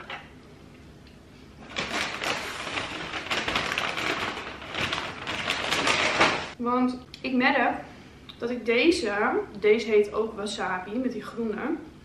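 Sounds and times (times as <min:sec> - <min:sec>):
paper bag rustling: 0:01.6 - 0:06.6.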